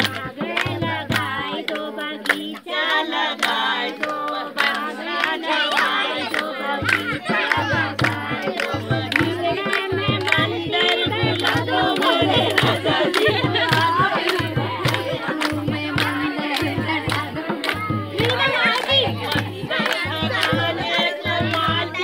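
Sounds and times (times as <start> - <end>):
hand clapping: 0.0 - 22.0
women singing together: 0.0 - 22.0
low drum beat: 6.9 - 22.0.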